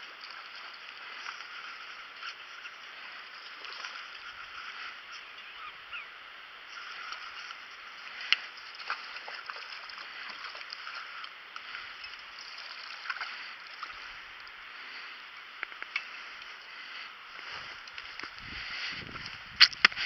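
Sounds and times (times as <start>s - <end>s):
creek water running: 0.0s - 20.0s.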